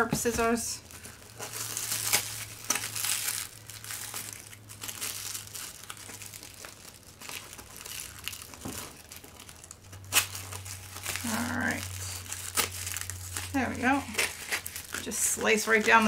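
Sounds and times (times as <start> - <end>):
plastic parcel crinkling: 0.0 - 16.0
scissors cutting plastic: 8.5 - 16.0.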